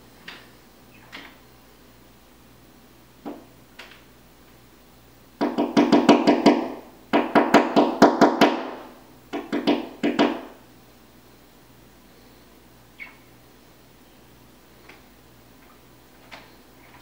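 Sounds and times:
woodpecker knocking on glass: 0:05.4 - 0:08.7, 0:09.3 - 0:10.5.

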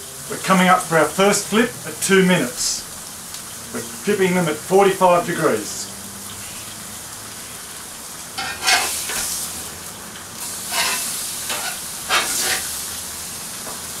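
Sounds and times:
steaks sizzling on a grill: 0:00.0 - 0:14.0
metal spatula scraping: 0:08.4 - 0:09.4, 0:10.6 - 0:12.7.

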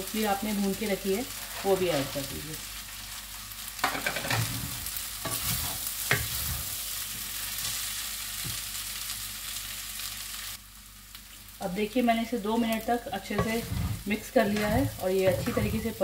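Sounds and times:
food sizzling in a frying pan: 0:00.0 - 0:16.0
wooden spatula scraping a pan: 0:03.8 - 0:07.3, 0:13.2 - 0:16.0.

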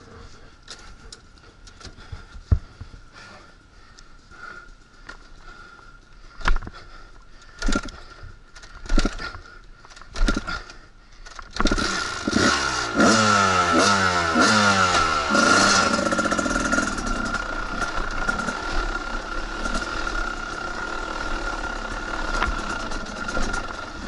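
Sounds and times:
dirt bike kick-start kicks: 0:05.0 - 0:24.0
dirt bike engine revving: 0:08.8 - 0:09.3, 0:10.1 - 0:10.6, 0:11.6 - 0:24.0.

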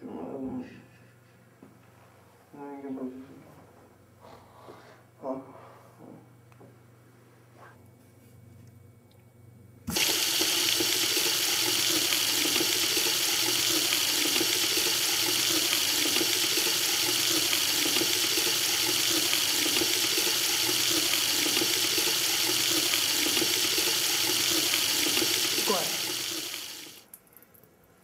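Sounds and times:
water tap turning on: 0:09.9 - 0:27.1
water running: 0:09.9 - 0:27.2.

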